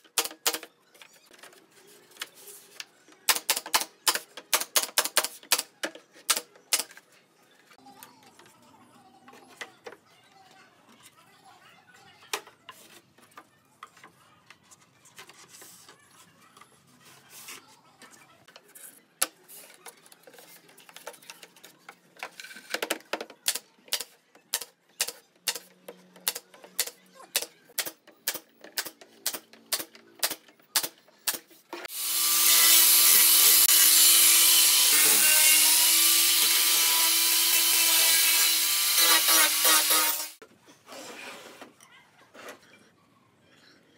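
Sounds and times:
loud power tool running: 31.9 - 35.2.

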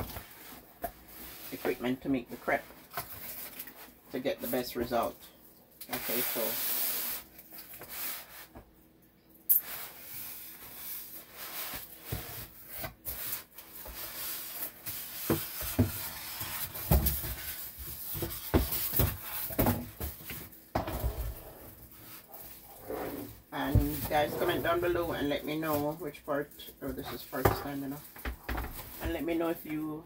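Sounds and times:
cardboard and plastic rustling: 9.9 - 30.0.

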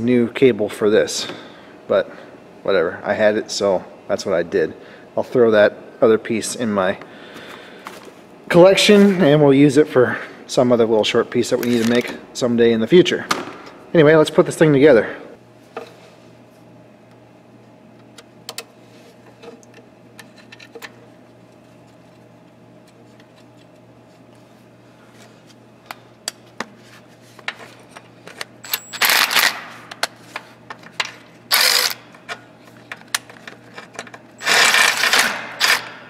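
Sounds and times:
cordless power driver running: 28.6 - 29.7, 31.5 - 32.2, 34.4 - 36.0.

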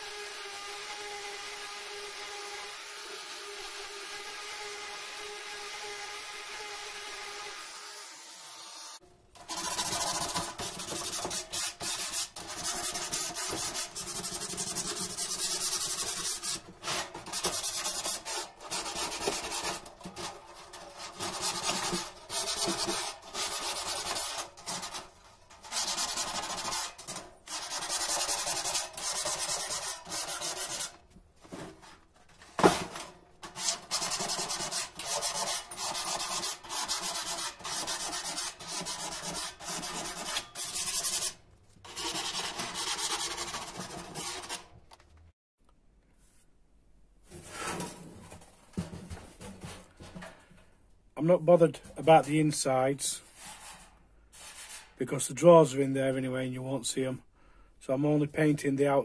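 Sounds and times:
hand sanding sheet metal: 9.4 - 32.0, 32.6 - 44.8.

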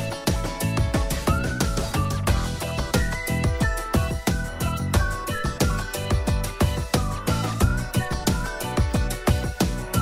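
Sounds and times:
electronic background music: 0.0 - 10.0.

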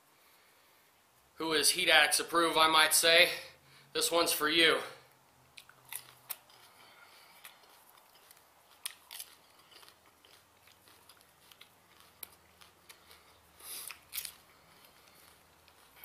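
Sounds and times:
crunching bites of peppers: 5.5 - 16.0.

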